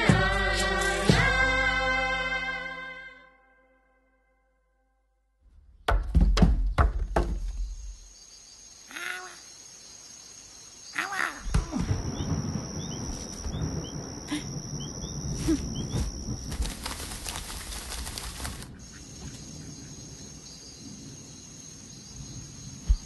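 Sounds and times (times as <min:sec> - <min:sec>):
insects trilling: 0:07.2 - 0:23.0.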